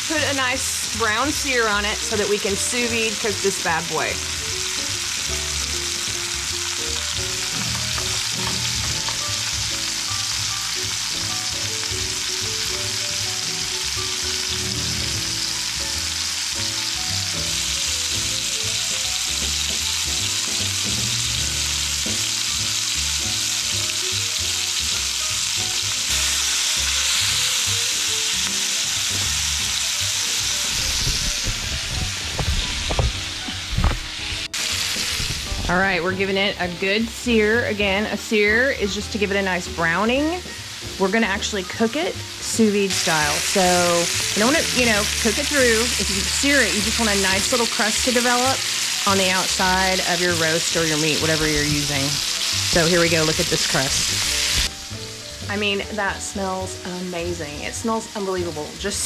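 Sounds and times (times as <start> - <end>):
meat sizzling in a pan: 0.0 - 59.0.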